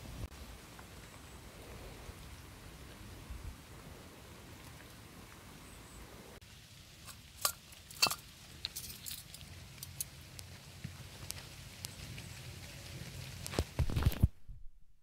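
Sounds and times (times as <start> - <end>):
faint steady hiss: 0.0 - 14.4
metallic clicks from camping stove: 7.0 - 10.5.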